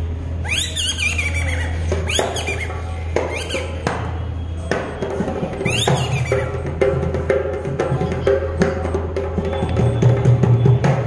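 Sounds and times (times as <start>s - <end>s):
squeaky puppet voice whistle: 0.4s - 3.9s, 4.9s - 6.8s.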